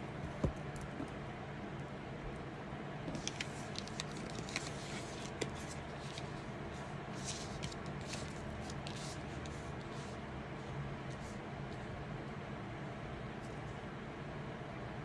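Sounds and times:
cards being shuffled: 3.1s - 6.4s, 7.1s - 10.2s.

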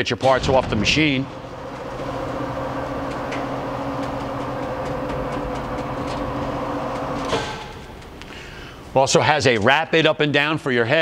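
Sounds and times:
grinder table drive humming: 0.3s - 9.0s.

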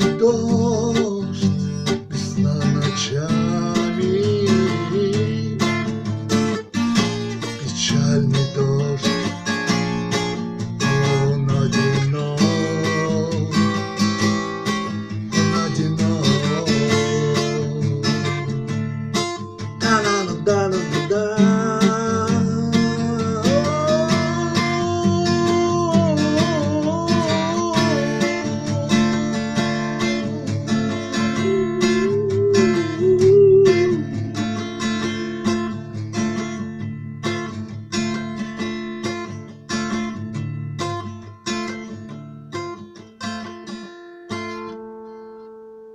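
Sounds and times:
man singing long notes: 0.0s - 5.8s, 7.6s - 9.4s, 11.0s - 13.8s, 15.4s - 18.6s, 19.8s - 36.6s
acoustic guitar strumming: 0.0s - 45.9s.

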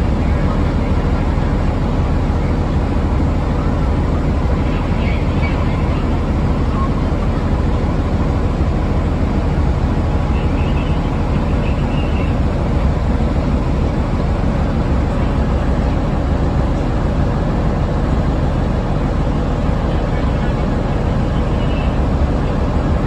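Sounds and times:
train wheels rumbling on rails: 0.0s - 23.0s.

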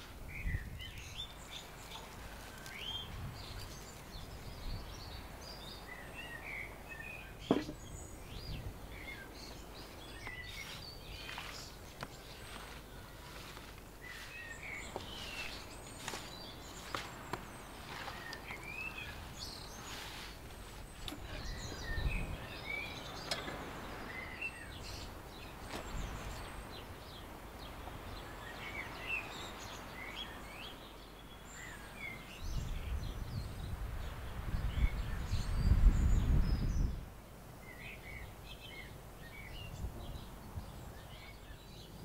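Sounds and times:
outdoor hush: 0.0s - 29.9s
small birds chirping: 0.0s - 42.0s.

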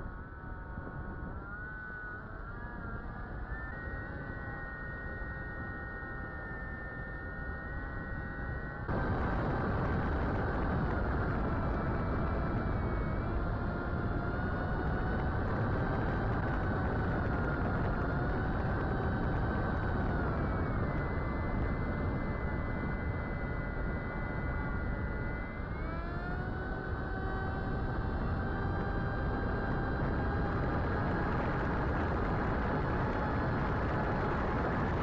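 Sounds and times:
electric motor and propeller whining: 0.0s - 35.0s
wind rush: 8.9s - 23.5s, 27.6s - 35.0s.

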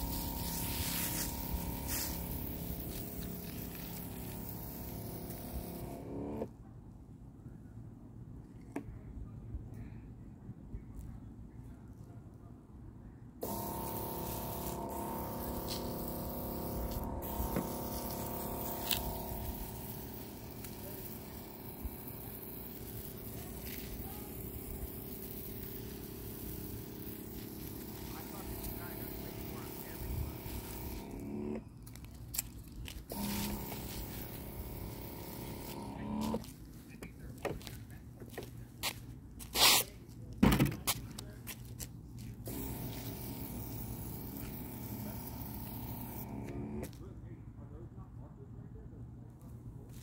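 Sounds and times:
scuffing bursts: 0.0s - 6.0s, 31.8s - 47.0s
low mechanical motor hum: 0.0s - 6.6s, 13.4s - 38.7s, 42.0s - 49.9s
footsteps on concrete: 31.8s - 34.3s, 36.2s - 42.4s.

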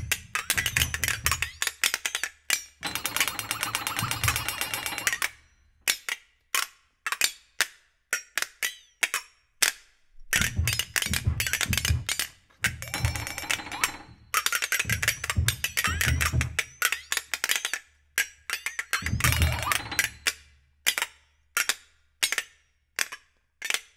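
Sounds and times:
flexatone clicks and rattles: 0.0s - 6.1s, 10.3s - 21.0s
low thuds: 10.3s - 14.2s, 14.9s - 16.7s.

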